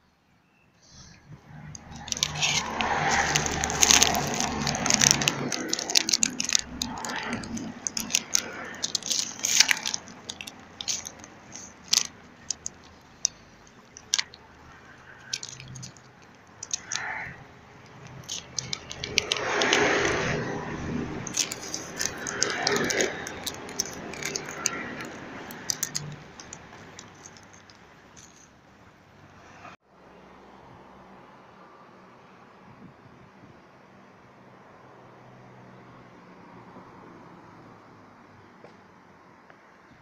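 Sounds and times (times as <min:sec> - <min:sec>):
rustling rub: 0:01.7 - 0:14.4, 0:15.1 - 0:20.5, 0:21.2 - 0:28.5.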